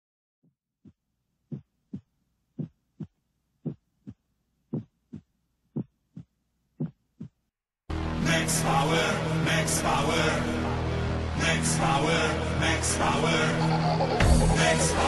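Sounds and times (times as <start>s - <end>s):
heartbeat thumps: 0.8s - 7.4s.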